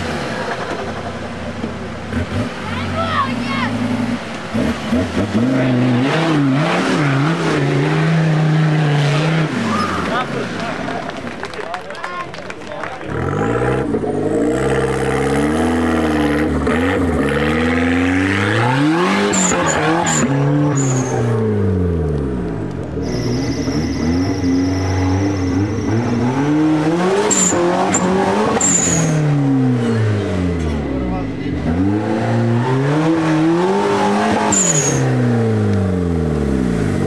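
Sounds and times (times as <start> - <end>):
engine revving: 2.0 - 10.9, 13.0 - 37.0
high-pitched squeaks: 19.4 - 21.3, 23.0 - 26.4, 27.2 - 29.3.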